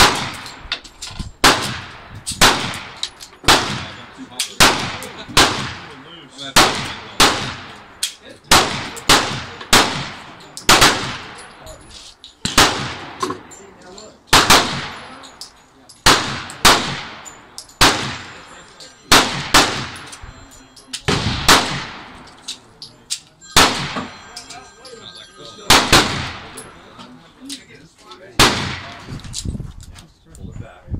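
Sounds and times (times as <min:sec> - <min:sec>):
pistol shots with ringing echo: 0:00.0 - 0:00.7, 0:01.4 - 0:11.8, 0:12.4 - 0:13.6, 0:14.3 - 0:22.6, 0:23.5 - 0:25.0, 0:25.6 - 0:26.9, 0:28.4 - 0:29.3
fainter gunshots: 0:21.1 - 0:22.1, 0:23.6 - 0:24.1, 0:25.7 - 0:26.5, 0:28.4 - 0:29.0.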